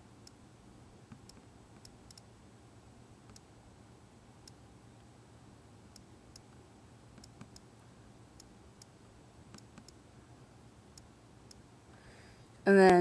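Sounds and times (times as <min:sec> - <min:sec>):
on-screen keyboard clicks: 0:01.1 - 0:02.3, 0:03.3 - 0:03.5, 0:07.2 - 0:07.7, 0:09.5 - 0:10.0.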